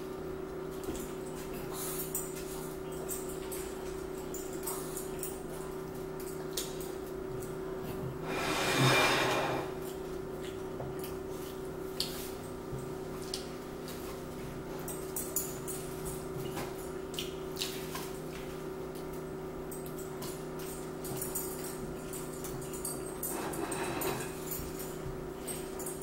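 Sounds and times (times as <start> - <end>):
steady hum: 8.2 - 9.9.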